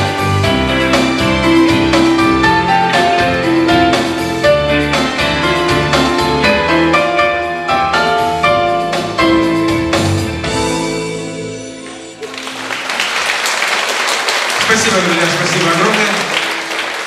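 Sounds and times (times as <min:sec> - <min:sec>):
electric guitar: 0:00.0 - 0:12.8
keyboard piano melody: 0:00.0 - 0:13.8.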